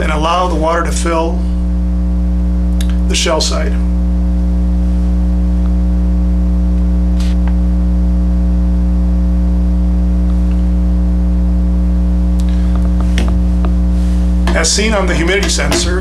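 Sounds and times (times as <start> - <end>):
electrical mains hum: 0.0 - 16.0.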